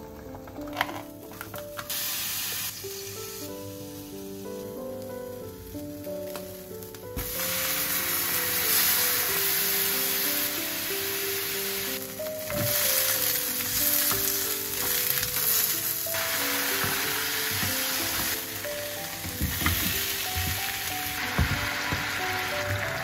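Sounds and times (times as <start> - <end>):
food sizzling in oil: 1.8 - 23.0
wooden utensils knocking in pan: 12.4 - 13.0, 16.8 - 18.5, 19.1 - 23.0.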